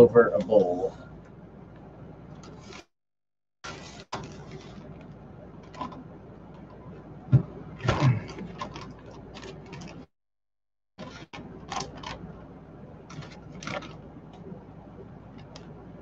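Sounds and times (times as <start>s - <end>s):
plastic bag crinkling: 7.8s - 10.1s, 11.0s - 12.3s, 13.1s - 14.0s.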